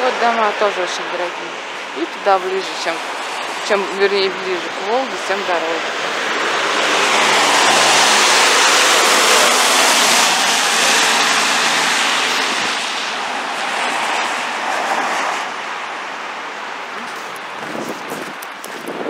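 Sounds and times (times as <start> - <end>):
tyre hiss on wet road: 3.0 - 3.6, 5.9 - 18.7.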